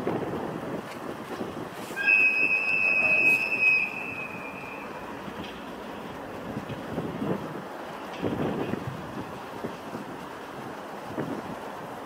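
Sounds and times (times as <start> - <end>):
train rumble: 0.0 - 12.0
train wheel squeal: 1.8 - 5.2.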